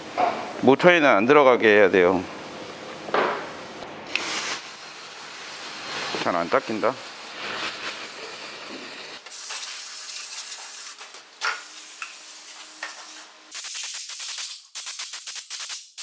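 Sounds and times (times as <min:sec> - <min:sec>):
aerosol spray hissing: 0:04.1 - 0:16.0.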